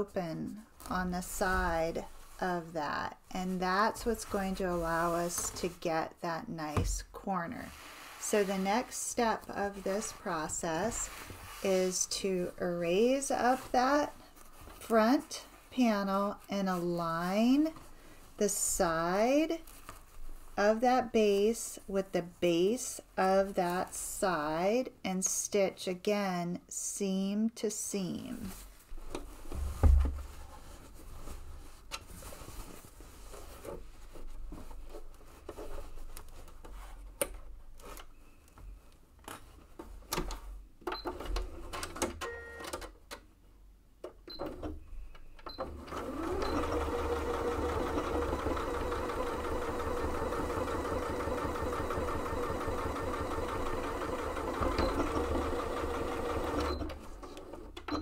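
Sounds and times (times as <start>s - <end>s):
fabric rustling: 0.0s - 6.1s, 7.1s - 22.7s, 28.3s - 40.1s
sewing machine stitching: 45.6s - 58.0s.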